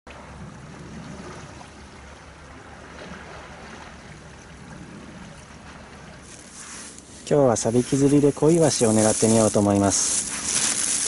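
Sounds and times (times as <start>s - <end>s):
wind rumble on microphone: 0.1s - 6.5s
water washing on shore: 0.8s - 11.0s.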